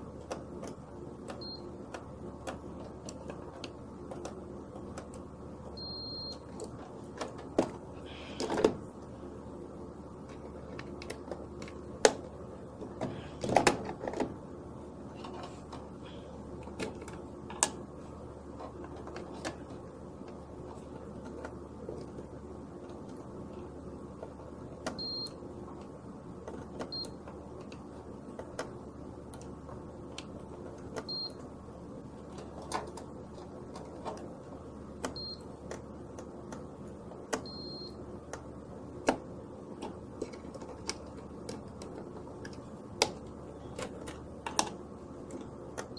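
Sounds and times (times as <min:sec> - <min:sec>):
multimeter beeping: 0:01.4 - 0:01.7, 0:05.8 - 0:06.5, 0:25.0 - 0:25.4, 0:31.1 - 0:31.4, 0:35.1 - 0:35.5, 0:37.4 - 0:38.0
test probes clicking and knocking: 0:39.8 - 0:45.9.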